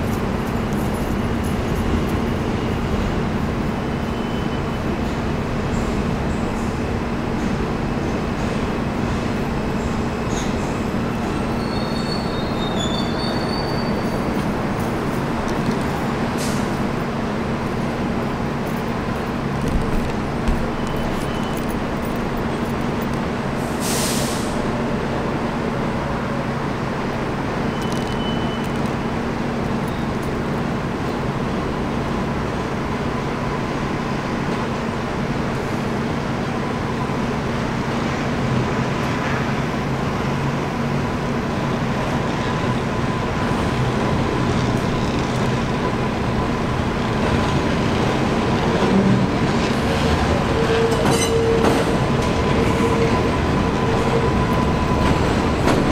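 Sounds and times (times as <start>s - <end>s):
faint train whine: 0.0s - 55.9s
hiss of air: 23.6s - 24.7s
distant train rumble: 28.5s - 55.9s.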